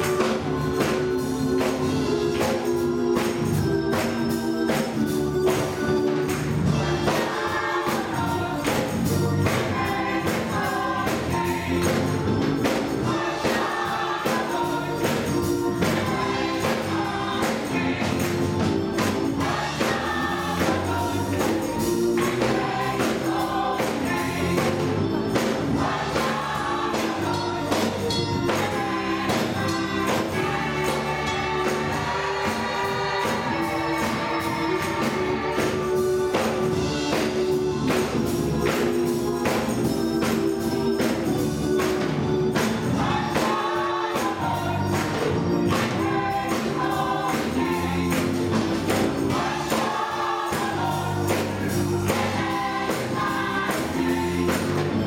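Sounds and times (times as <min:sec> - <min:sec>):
gospel choir singing: 0:00.0 - 0:55.0
organ chords: 0:00.0 - 0:55.0
tambourine: 0:00.0 - 0:55.0
hand claps: 0:02.4 - 0:06.6.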